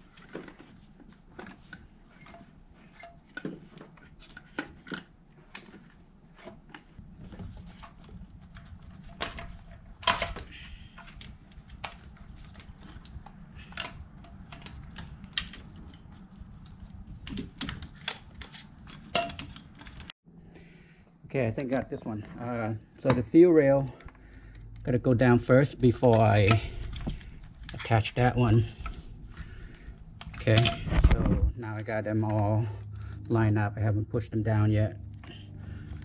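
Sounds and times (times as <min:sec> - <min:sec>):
low steady hum: 0:00.0 - 0:36.0
metal parts clicking and tapping: 0:07.7 - 0:20.1.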